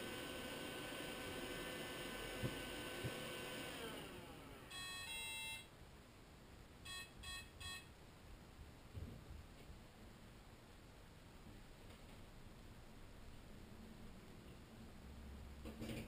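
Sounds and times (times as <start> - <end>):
robot mop motors winding down: 0.0 - 4.7
electronic beeps: 4.7 - 5.7, 6.9 - 7.9.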